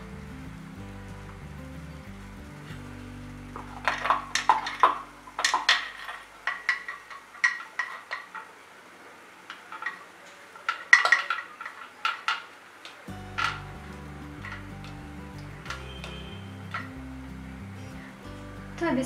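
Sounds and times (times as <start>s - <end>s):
metal plates clinking and clattering: 3.6s - 8.6s, 9.5s - 17.0s.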